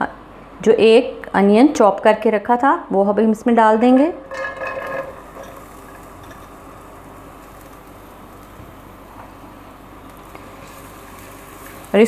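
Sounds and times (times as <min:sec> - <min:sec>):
onions sizzling in oil: 0:04.2 - 0:12.0.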